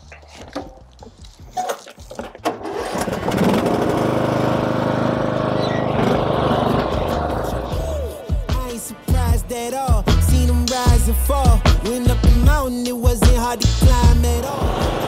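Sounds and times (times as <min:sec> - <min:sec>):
mower engine starting: 0:01.6 - 0:07.8, 0:14.3 - 0:15.0.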